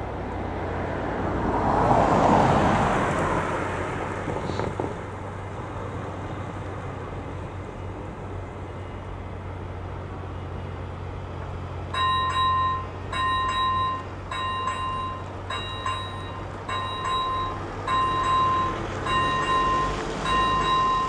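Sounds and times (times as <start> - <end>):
level crossing warning bell ringing: 11.8 - 21.0.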